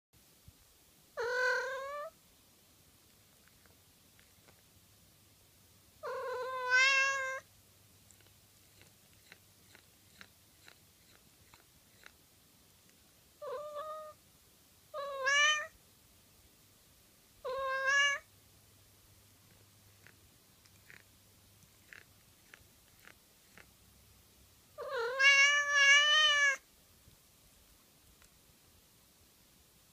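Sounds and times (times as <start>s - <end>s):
cat meowing: 1.2s - 2.2s, 6.0s - 7.5s, 13.4s - 14.2s, 14.9s - 15.8s, 17.4s - 18.3s, 24.8s - 26.6s
faint small clicks: 3.0s - 4.7s, 8.0s - 12.2s, 28.0s - 28.4s.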